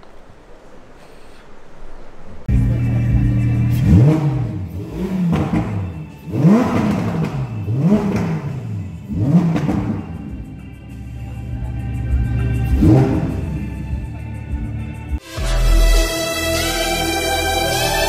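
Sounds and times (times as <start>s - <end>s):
car engine idling and revving: 2.2s - 15.2s.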